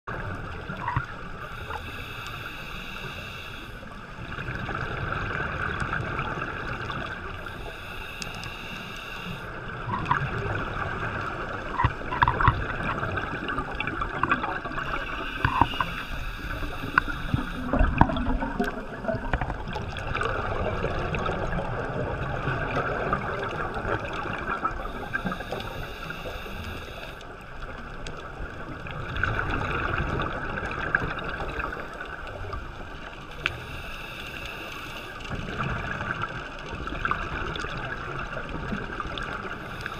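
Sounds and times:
muffled underwater rush: 0.0 - 39.9
breaths through a regulator: 1.4 - 3.9, 7.3 - 9.6, 14.6 - 19.2, 24.8 - 27.2, 33.3 - 35.4, 39.5 - 39.9
bubbling: 3.4 - 33.8.

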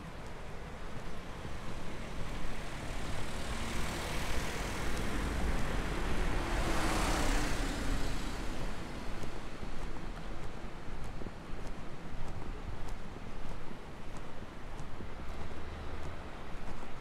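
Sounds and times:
car passing by: 1.2 - 10.3.

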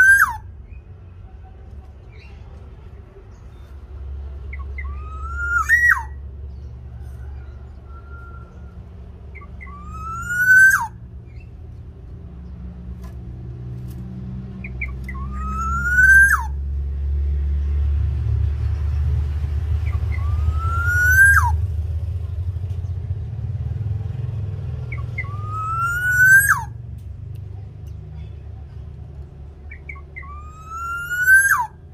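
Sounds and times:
oriole calling: 0.0 - 0.7, 4.5 - 6.5, 7.2 - 11.6, 14.6 - 16.7, 19.8 - 21.7, 24.8 - 26.9, 29.6 - 31.9.

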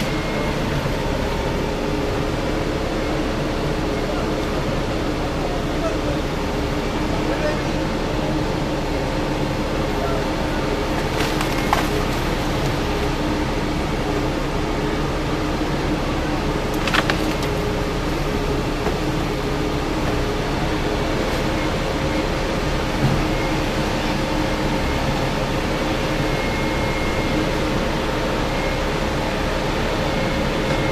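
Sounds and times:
heavy diesel engine running: 0.0 - 30.9.

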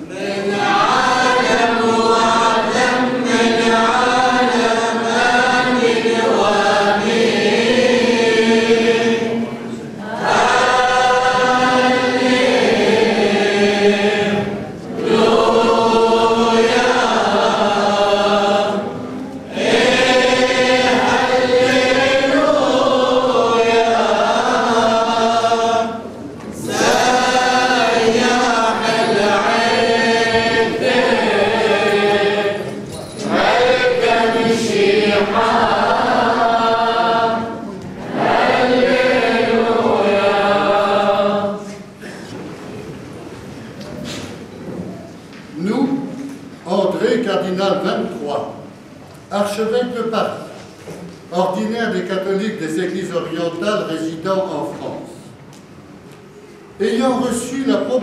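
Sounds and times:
choir singing a chant: 0.0 - 42.2.

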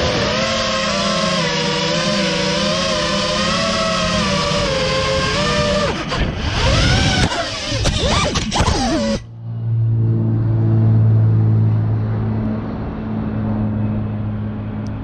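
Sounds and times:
quadcopter motors whining: 0.0 - 9.3.

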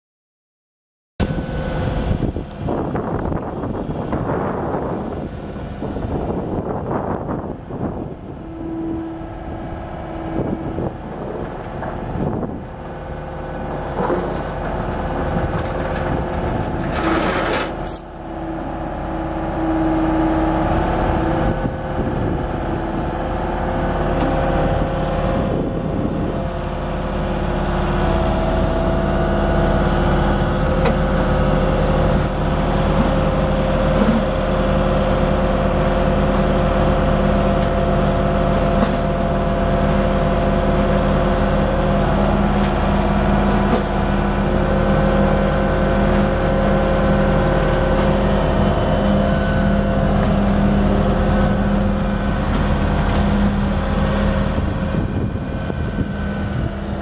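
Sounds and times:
diesel engine running: 1.2 - 57.0
high whining tones: 6.9 - 12.6.

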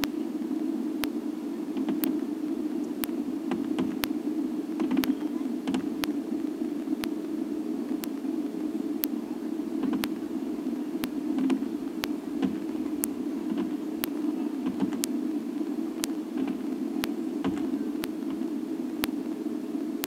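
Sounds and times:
low hum and hiss: 0.0 - 20.0
faint irregular pops: 1.8 - 20.0
sharp ticks: 1.9 - 2.2, 3.0 - 4.2, 4.8 - 6.2, 9.9 - 10.3.

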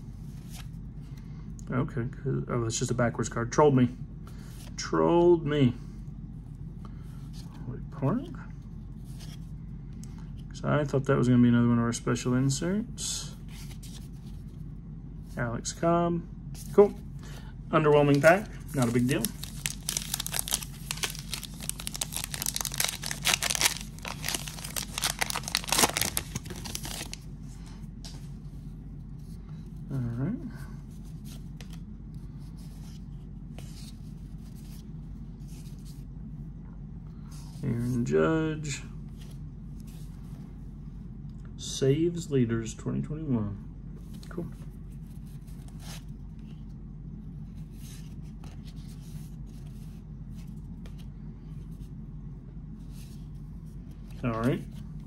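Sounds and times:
steady low hum: 0.0 - 55.0
foil wrapper tearing and crinkling: 18.1 - 27.2.

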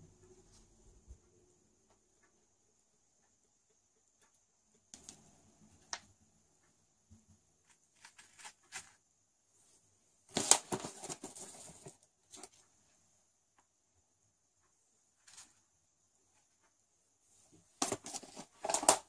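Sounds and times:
paper filter rustling: 7.6 - 9.0.

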